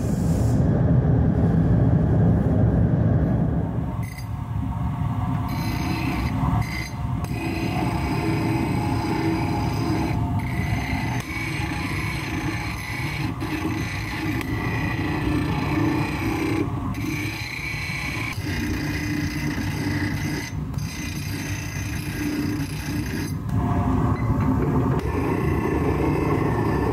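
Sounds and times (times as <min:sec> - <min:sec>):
workshop hum: 0:00.0 - 0:26.9
tools rasping on metal: 0:05.5 - 0:23.4.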